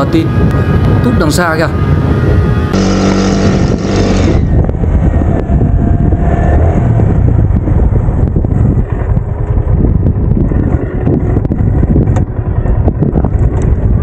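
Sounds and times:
bamboo flute drone: 0:00.0 - 0:07.1
wind buffeting microphone: 0:00.0 - 0:14.0.

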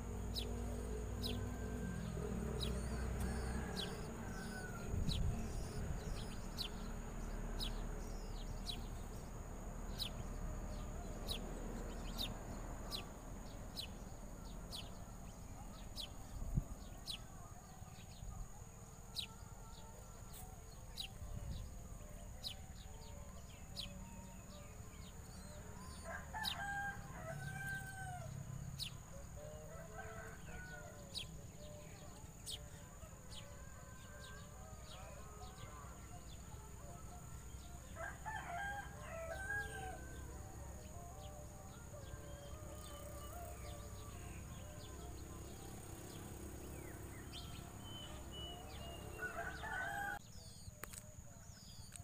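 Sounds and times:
rooster crowing: 0:01.2 - 0:06.7, 0:25.6 - 0:28.4, 0:29.3 - 0:32.2, 0:37.6 - 0:50.3.

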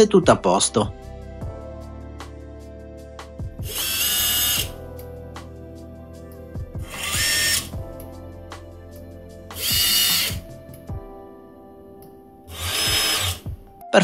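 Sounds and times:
background music: 0:00.0 - 0:14.0
electric motor high-pitched whines: 0:03.6 - 0:04.7, 0:06.8 - 0:07.7, 0:09.6 - 0:10.4, 0:12.5 - 0:13.5.

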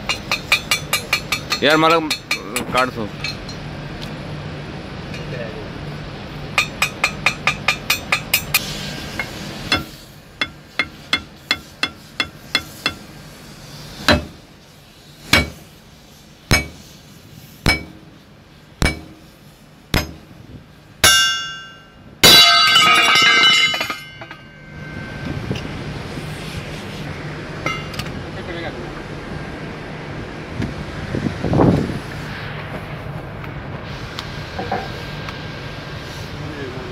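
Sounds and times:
hammer striking steel: 0:00.0 - 0:03.6, 0:06.6 - 0:13.1, 0:14.1 - 0:14.4, 0:15.3 - 0:15.7, 0:16.5 - 0:16.9, 0:17.6 - 0:18.2, 0:18.8 - 0:20.4, 0:21.0 - 0:25.7, 0:27.6 - 0:28.1
ringing metallic clangs: 0:00.1 - 0:03.6, 0:21.0 - 0:25.8, 0:27.6 - 0:28.0.

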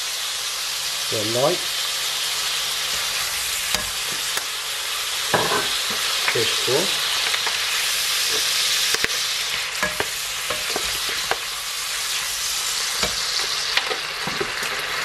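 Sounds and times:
beef sizzling in a wok: 0:00.0 - 0:15.0
spatula clicking and scraping: 0:09.8 - 0:11.5.

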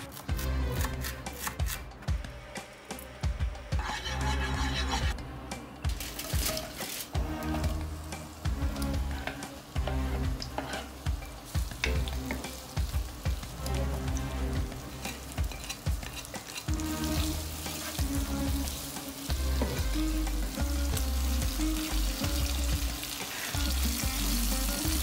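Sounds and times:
background music: 0:00.0 - 0:25.0
onions sizzling in oil: 0:05.9 - 0:25.0.

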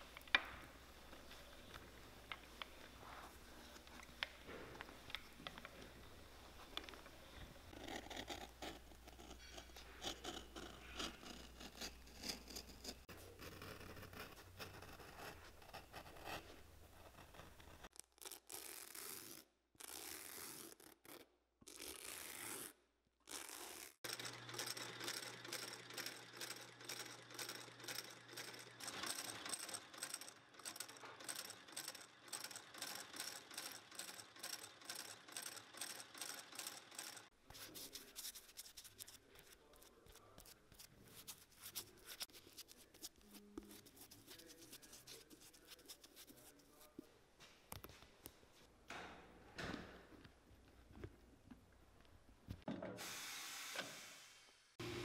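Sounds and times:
finishing machine running: 0:24.1 - 0:37.3
wire brush rasping leather: 0:36.3 - 0:47.0.

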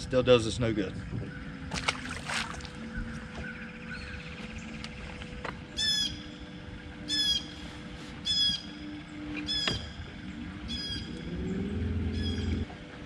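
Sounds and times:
bird squawking: 0:05.7 - 0:06.4, 0:07.0 - 0:07.6, 0:08.2 - 0:09.9, 0:10.6 - 0:11.4, 0:12.0 - 0:12.7.

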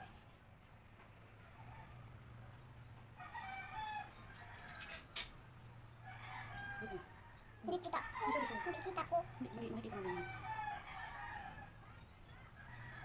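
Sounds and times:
rooster crowing: 0:03.2 - 0:05.0, 0:06.0 - 0:11.8, 0:12.5 - 0:13.0.

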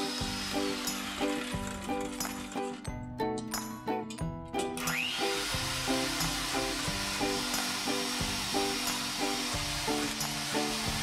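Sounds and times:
electric hand mixer whirring: 0:00.0 - 0:02.8, 0:04.8 - 0:11.0
background music: 0:00.0 - 0:11.0.

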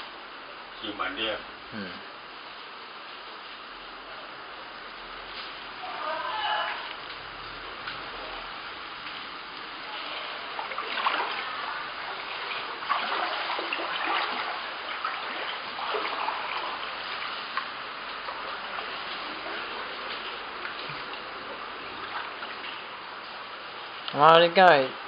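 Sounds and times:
hiss of moving water: 0:05.0 - 0:24.0
person wading through water: 0:06.4 - 0:24.0.

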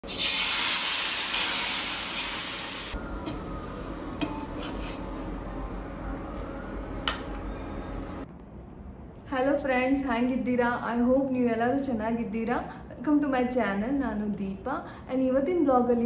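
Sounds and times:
batter sizzling on a hot pan: 0:00.1 - 0:03.0.

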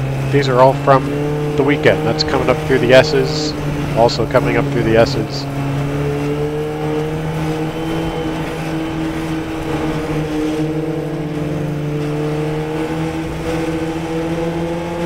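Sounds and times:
racing car engine running: 0:00.0 - 0:15.0.

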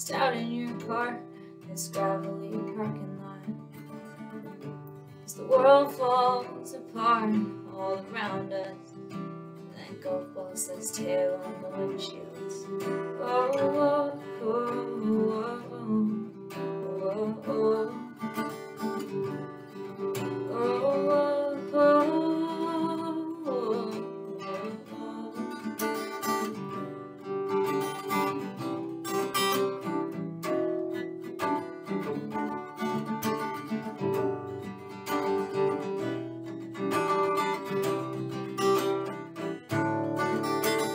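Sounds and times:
person singing wordlessly: 0:00.0 - 0:03.6, 0:05.3 - 0:08.8, 0:09.7 - 0:18.3, 0:20.5 - 0:25.8
acoustic guitar chords: 0:00.0 - 0:40.9.

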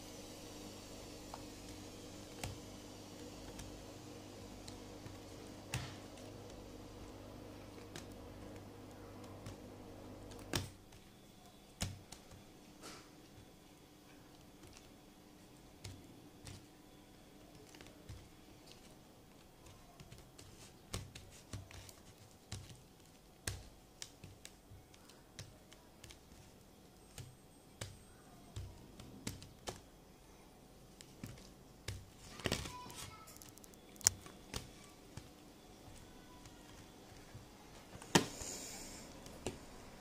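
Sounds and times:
slime crackles: 0:14.1 - 0:30.1, 0:30.8 - 0:40.0.

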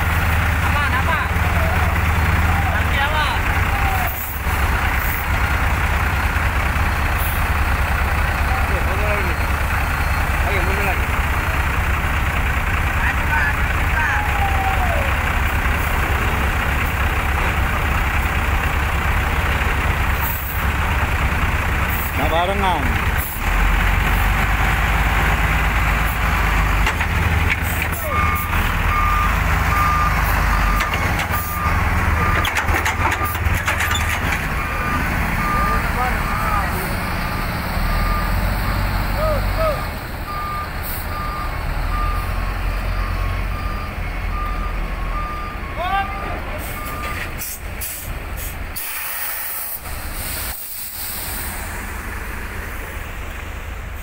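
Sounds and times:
diesel truck engine rumbling: 0:00.0 - 0:54.0
reversing alarm beeping: 0:28.0 - 0:33.5, 0:34.6 - 0:47.4
air brake hissing: 0:46.6 - 0:51.8.

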